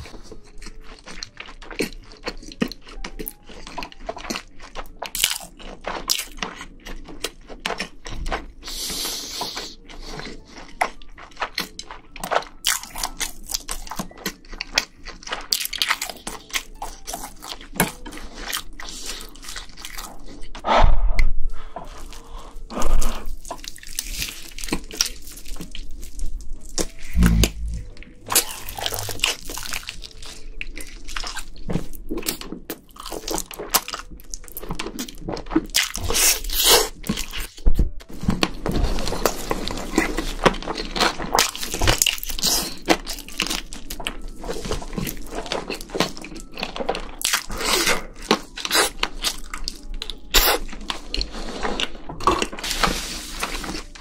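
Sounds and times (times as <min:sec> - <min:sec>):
crunching and chewing fried chicken: 0:00.0 - 0:20.6, 0:21.6 - 0:54.0.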